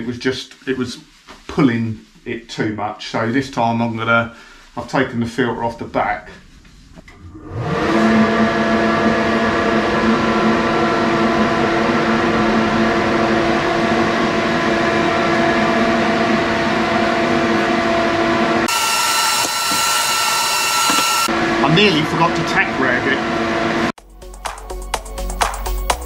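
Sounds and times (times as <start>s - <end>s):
extractor fan humming: 7.1s - 22.0s.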